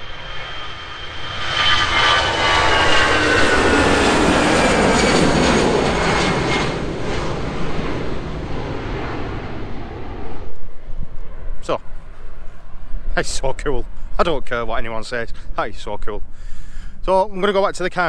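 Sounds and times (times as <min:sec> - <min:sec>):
jet airliner taking off: 0:00.0 - 0:18.0.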